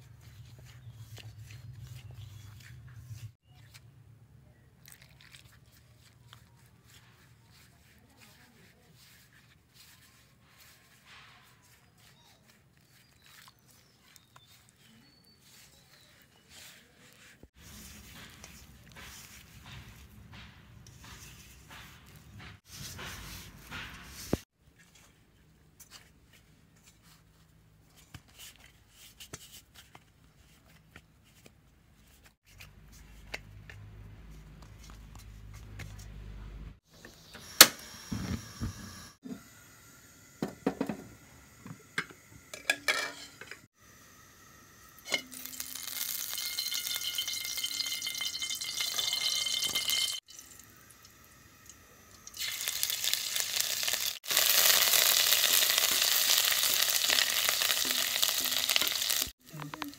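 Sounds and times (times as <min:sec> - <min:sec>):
ladle stirring in pot: 0:04.8 - 0:24.4, 0:45.0 - 0:51.0
steel pot and lid clanking: 0:42.0 - 0:43.7, 0:45.0 - 0:50.4
food sizzling in hot oil: 0:43.8 - 0:59.9.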